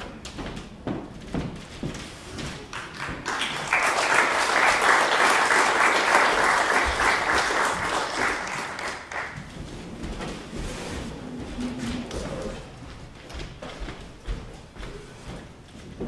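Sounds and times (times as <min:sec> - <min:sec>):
audience applauding: 0:02.7 - 0:09.4.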